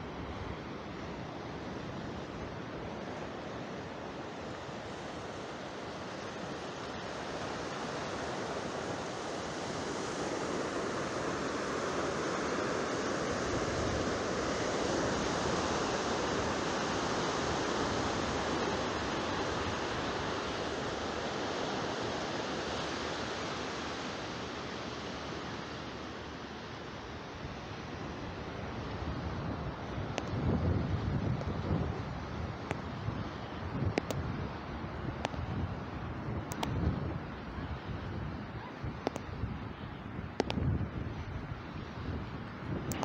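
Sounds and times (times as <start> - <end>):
sea waves washing: 0.0 - 26.8.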